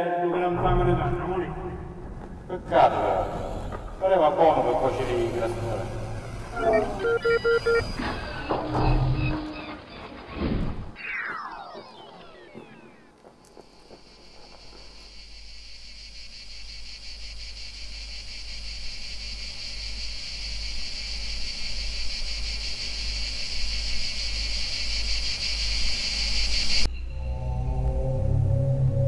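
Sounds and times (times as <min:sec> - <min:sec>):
insects buzzing: 0:01.0 - 0:27.9
music: 0:26.9 - 0:29.0.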